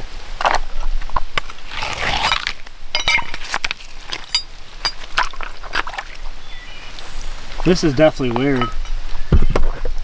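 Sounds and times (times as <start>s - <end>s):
wet stones clinking together: 2.3s - 6.1s.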